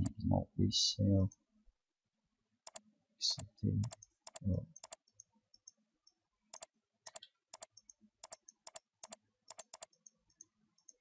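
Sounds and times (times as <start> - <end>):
mouse clicks: 2.6 - 2.8, 3.4 - 11.0.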